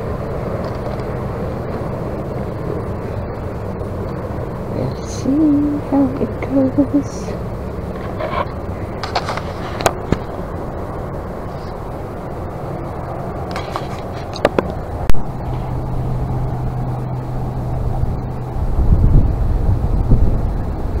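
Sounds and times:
low steady hum: 0.0 - 21.0
wind: 0.0 - 21.0
wind buffeting microphone: 0.0 - 21.0
sharp clicks and knocks: 13.5 - 15.2.

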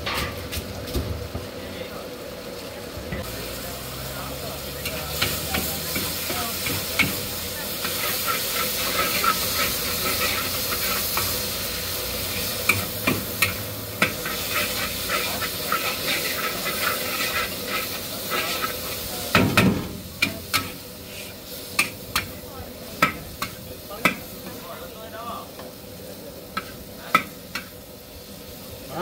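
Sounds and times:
noodles sizzling in a wok: 0.0 - 29.0
metal spatula scraping wok: 4.8 - 19.4, 20.0 - 22.4.

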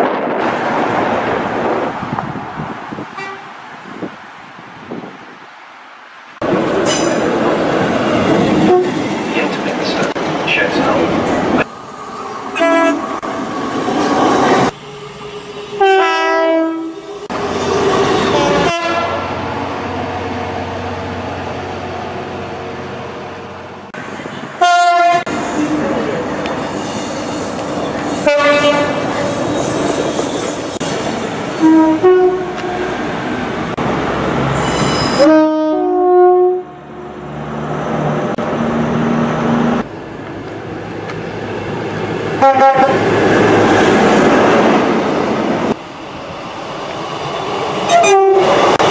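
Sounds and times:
two-tone train horn: 3.2 - 3.5, 8.6 - 9.0, 12.6 - 13.0, 15.8 - 17.0, 18.2 - 19.3, 24.6 - 25.3, 28.2 - 29.0, 31.6 - 32.9, 35.2 - 37.1, 42.4 - 43.0, 47.9 - 48.5.

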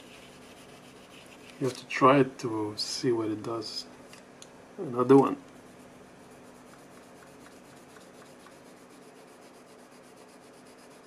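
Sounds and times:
colored pencil scratching on paper: 0.0 - 1.7, 5.5 - 11.0.

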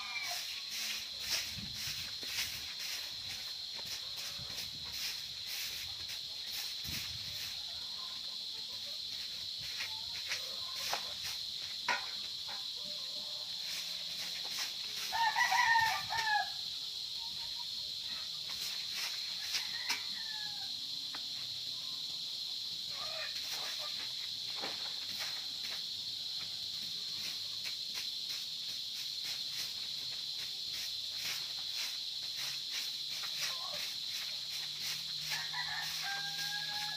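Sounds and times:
stick broom scratching dirt: 0.0 - 16.5, 18.2 - 20.6, 22.9 - 26.0, 26.9 - 36.9
rooster crowing: 15.0 - 16.7, 19.4 - 20.9, 35.2 - 36.9.

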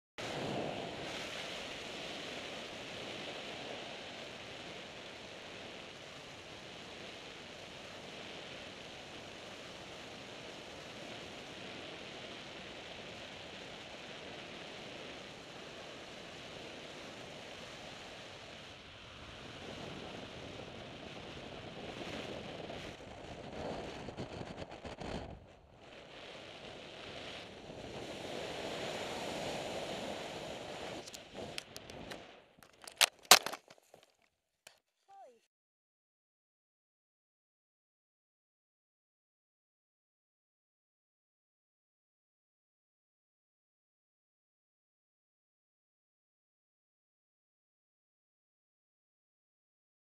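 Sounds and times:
wind rushing on microphone: 0.2 - 32.2.

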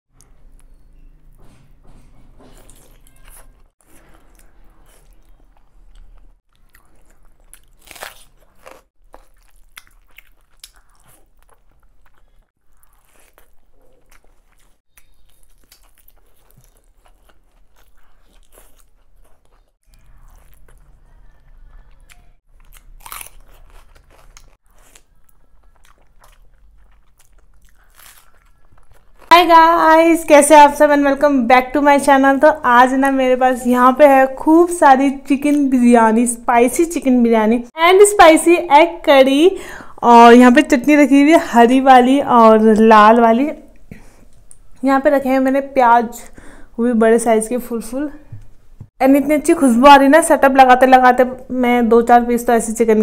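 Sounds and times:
person chewing and crunching: 2.6 - 29.3.

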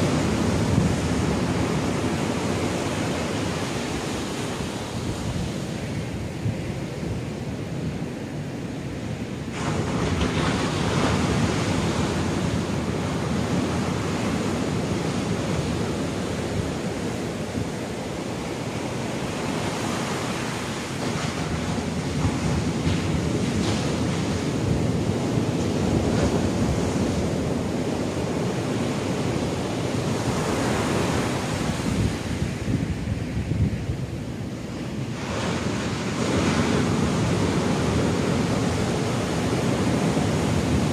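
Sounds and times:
ocean surf breaking on beach: 0.0 - 40.9
wind buffeting microphone: 0.0 - 40.9.

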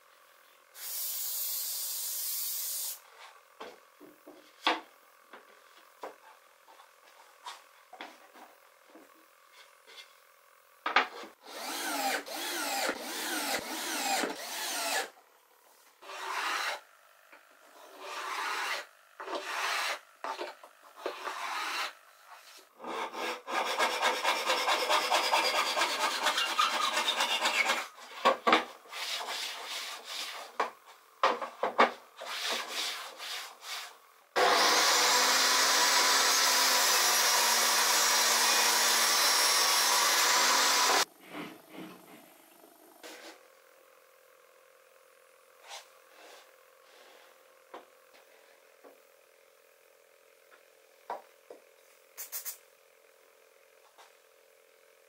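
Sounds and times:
hand saw cutting wood: 11.4 - 15.1, 16.0 - 16.8, 17.8 - 20.4, 21.0 - 22.0, 22.8 - 28.2, 28.9 - 30.6, 32.2 - 41.1
table saw motor running: 11.4 - 15.1, 34.4 - 41.2.

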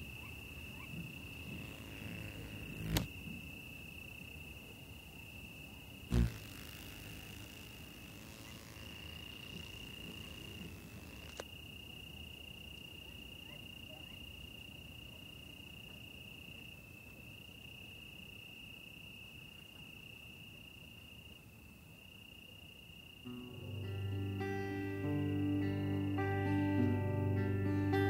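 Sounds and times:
high-pitched insect trill: 0.0 - 15.4.

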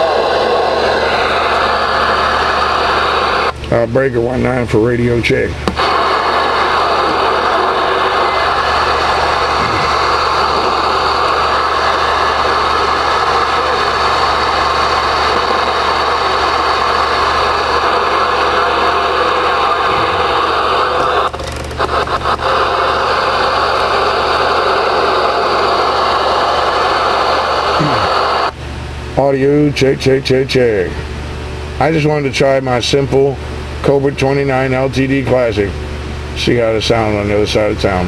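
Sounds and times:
radio static hiss: 0.0 - 28.6.

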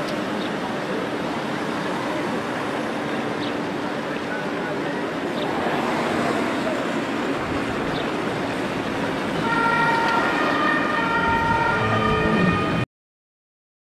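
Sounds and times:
outdoor background noise: 0.0 - 12.9
horn-like chord of steady tones: 9.4 - 12.9.

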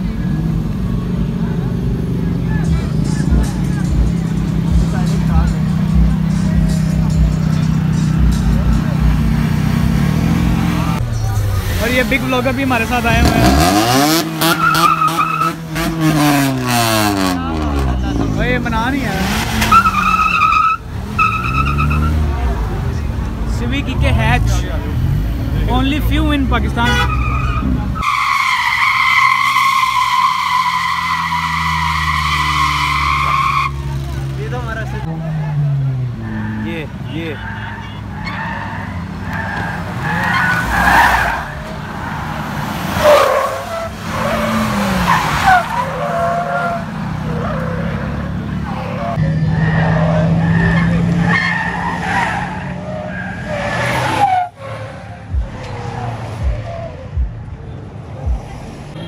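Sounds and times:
car engine running: 0.0 - 28.0
car tyres squealing: 0.0 - 57.3
car engine: 0.0 - 59.0.

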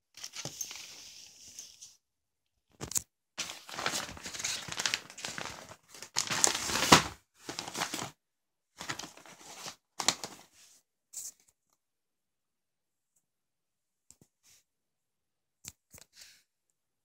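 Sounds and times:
plastic wrapping crinkling: 3.4 - 8.1, 8.8 - 10.4.

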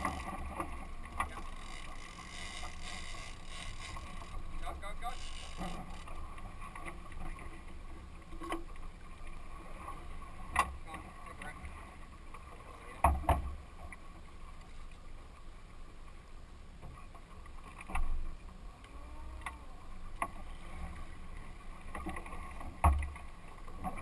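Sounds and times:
boat engine hum: 0.0 - 14.3
water against hull: 0.0 - 24.0
wind: 0.0 - 24.0.

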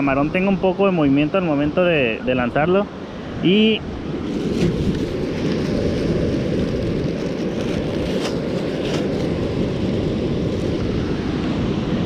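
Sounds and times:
wind buffeting microphone: 1.2 - 12.0.

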